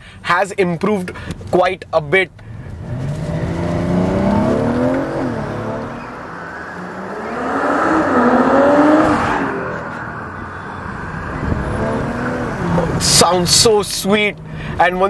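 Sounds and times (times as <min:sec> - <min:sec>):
car engine accelerating hard: 0:02.5 - 0:13.6.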